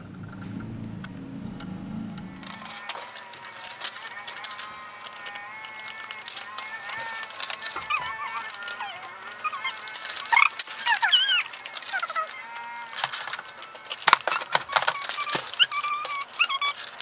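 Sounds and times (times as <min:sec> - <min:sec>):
paper rustling and crackling: 0:02.2 - 0:17.0
squeaky high-pitched chirps: 0:05.5 - 0:12.8, 0:14.4 - 0:17.0.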